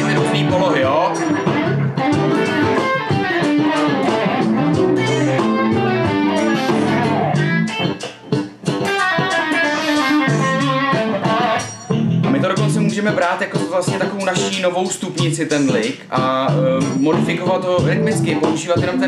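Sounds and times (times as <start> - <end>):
electric guitar lead: 0.0 - 13.0
bass line: 0.0 - 19.0
funky backing track: 0.0 - 19.0.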